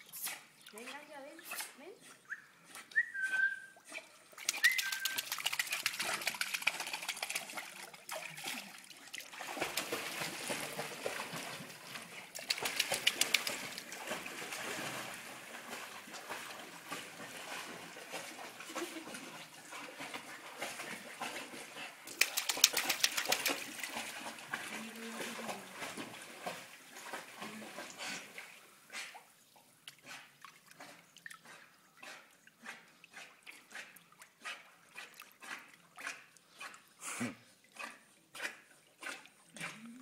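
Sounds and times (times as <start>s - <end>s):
dog splashing in water: 3.9s - 29.3s.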